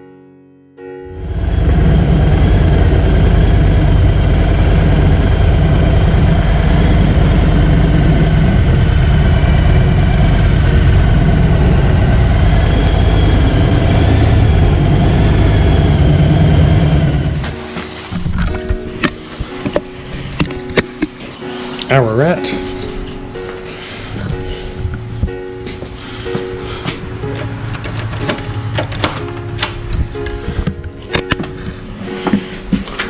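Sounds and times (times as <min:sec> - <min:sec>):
motorcycle engine running: 0:01.2 - 0:19.0.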